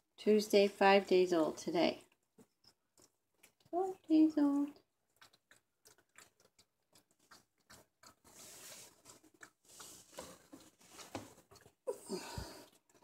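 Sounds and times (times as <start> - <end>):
dog licking puppies: 2.0 - 13.0
soft rustling: 8.2 - 11.7.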